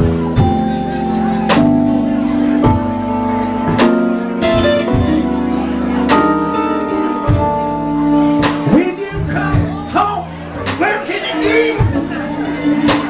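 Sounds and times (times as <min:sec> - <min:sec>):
electric keyboard chords: 0:00.0 - 0:13.0
guitar: 0:00.0 - 0:13.0
drum hits: 0:01.5 - 0:05.4, 0:07.2 - 0:10.0.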